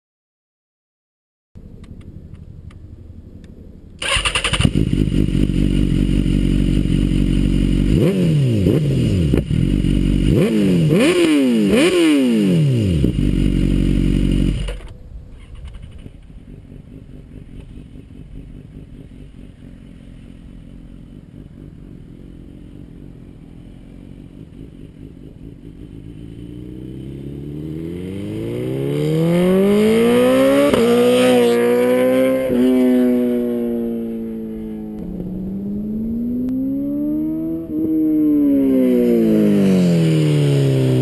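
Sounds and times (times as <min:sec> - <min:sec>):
motorcycle engine idling: 0:04.0 - 0:11.1, 0:12.8 - 0:27.8
motorcycle passing by: 0:04.0 - 0:41.0
motorcycle engine rev blip: 0:27.8 - 0:41.0.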